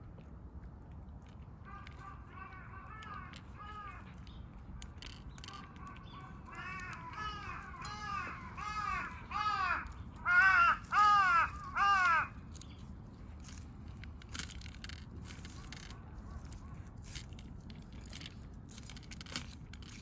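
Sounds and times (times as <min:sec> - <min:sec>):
crow cawing: 0:01.6 - 0:04.2, 0:05.5 - 0:12.4.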